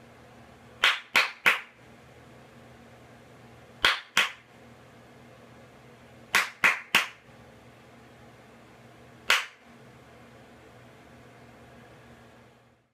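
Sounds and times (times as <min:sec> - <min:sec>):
hand claps: 0:00.8 - 0:01.8, 0:03.8 - 0:04.4, 0:06.3 - 0:07.2, 0:09.2 - 0:09.6.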